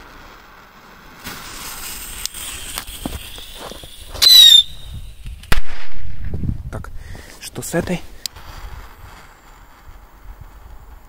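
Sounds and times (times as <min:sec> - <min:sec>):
firework rocket hiss: 0:00.0 - 0:06.0, 0:08.1 - 0:11.0
firework bang: 0:01.2 - 0:06.5
firework whistle: 0:01.3 - 0:05.3.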